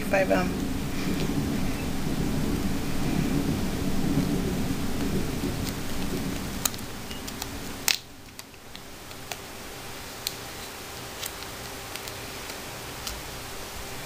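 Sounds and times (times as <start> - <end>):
low rumbling handling noise: 0.0 - 14.0
small containers clicking: 5.5 - 9.4, 10.2 - 13.5.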